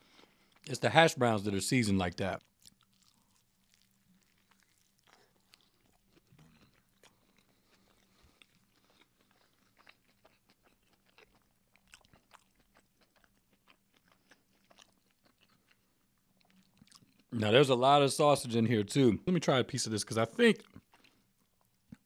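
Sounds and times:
chewing food: 0:00.0 - 0:00.7, 0:02.2 - 0:17.3, 0:20.6 - 0:22.0.

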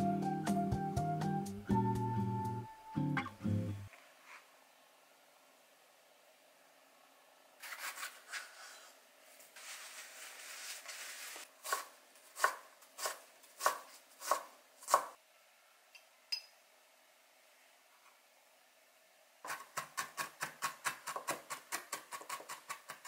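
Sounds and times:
scraping and rustling: 0:07.6 - 0:11.5
knife chopping on wooden board: 0:19.5 - 0:23.0.

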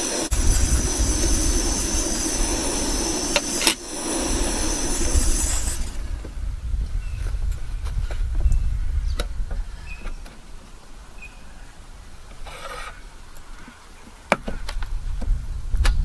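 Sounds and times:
gas stove hiss: 0:00.0 - 0:06.5
wind rumble on microphone: 0:00.0 - 0:10.3, 0:14.5 - 0:16.0.

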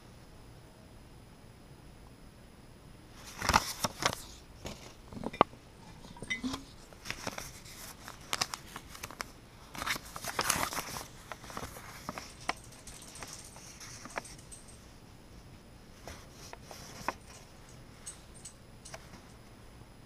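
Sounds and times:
paper rustling and crinkling: 0:03.2 - 0:14.6, 0:16.0 - 0:17.6.

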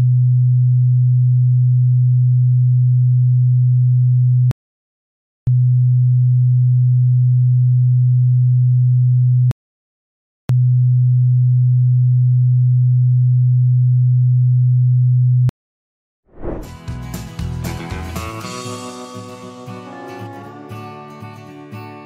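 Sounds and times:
low sine test tone: 0:00.0 - 0:04.5, 0:05.5 - 0:09.5, 0:10.5 - 0:15.5.

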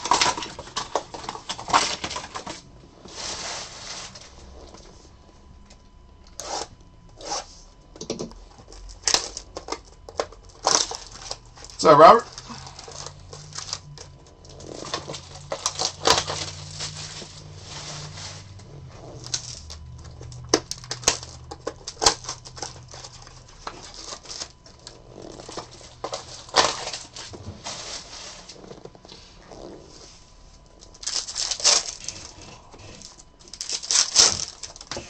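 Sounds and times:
wrappers rustling and crinkling: 0:00.0 - 0:07.4, 0:08.5 - 0:35.0.

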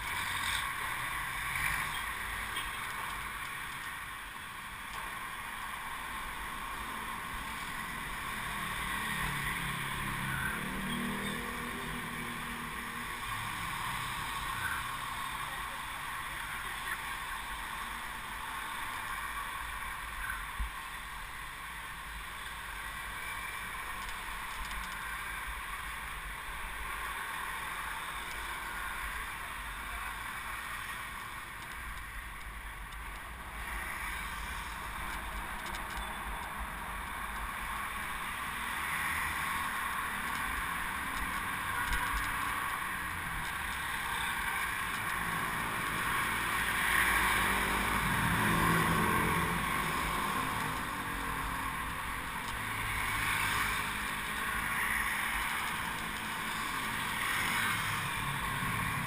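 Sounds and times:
bicycle road noise: 0:00.0 - 0:59.0
street traffic: 0:00.0 - 0:59.0.

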